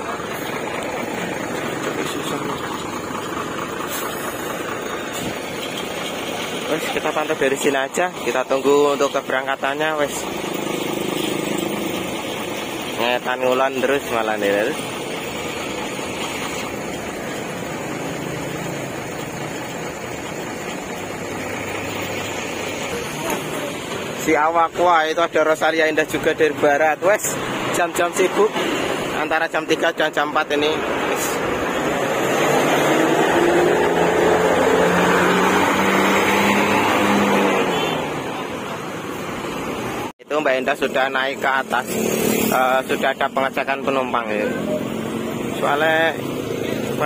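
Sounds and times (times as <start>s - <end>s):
diesel bus engine running: 0.0s - 47.0s
road noise hiss: 0.0s - 47.0s.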